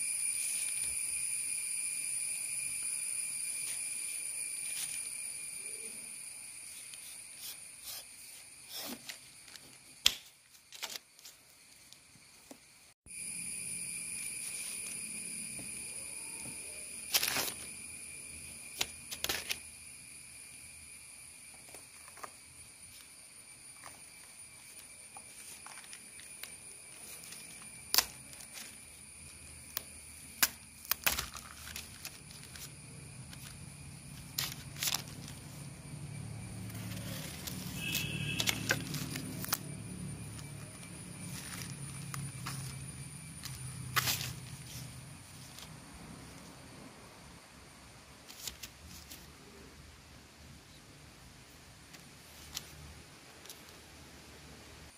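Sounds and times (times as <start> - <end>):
high-pitched whine: 0.0 - 9.6, 13.1 - 47.7.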